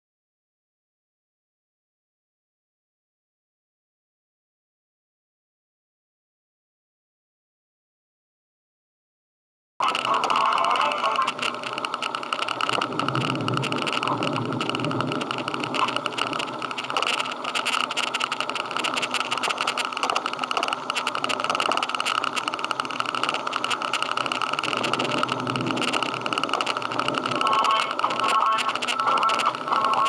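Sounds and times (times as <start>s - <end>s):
vehicle engine drone: 9.8s - 30.0s
road and wind noise: 11.2s - 30.0s.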